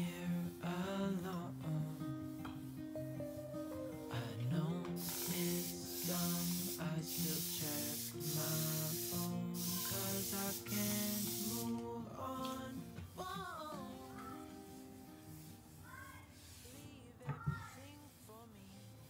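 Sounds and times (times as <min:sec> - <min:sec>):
spray bottle hissing bursts: 0:04.8 - 0:11.9.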